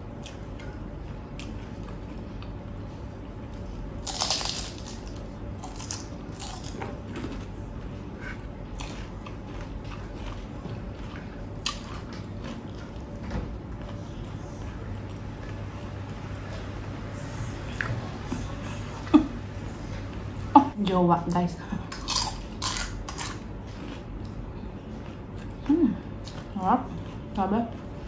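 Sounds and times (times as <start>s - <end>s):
steady low hum: 0.0s - 28.0s
person chewing and crunching food: 3.4s - 15.6s, 21.9s - 28.0s.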